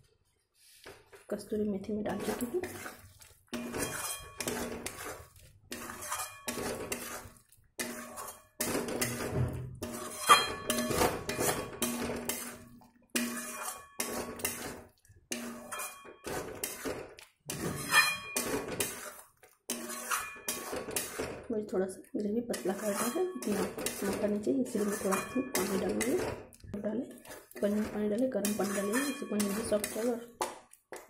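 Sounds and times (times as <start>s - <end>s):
spatula scraping a metal pan: 2.0s - 21.5s, 22.4s - 26.5s, 27.1s - 30.3s.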